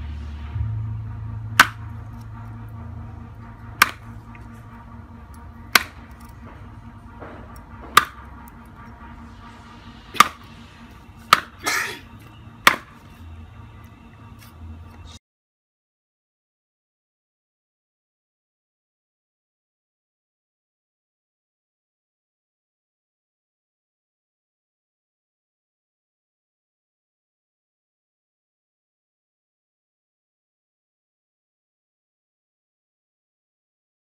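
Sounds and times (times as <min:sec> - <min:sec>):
cleaver chopping on wooden block: 0:01.6 - 0:01.8, 0:03.8 - 0:04.0, 0:05.7 - 0:06.0, 0:07.9 - 0:08.2, 0:10.2 - 0:10.4, 0:11.3 - 0:11.6, 0:12.6 - 0:12.9.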